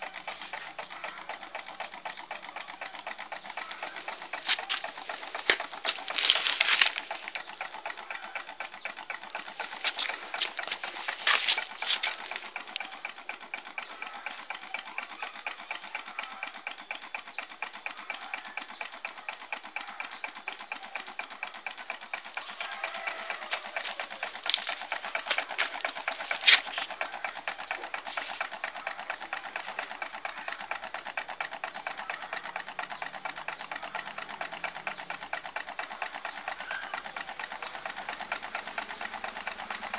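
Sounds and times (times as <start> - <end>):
louder engine clacks: 0.0 - 39.9
small engine mechanical clatter: 0.0 - 39.9.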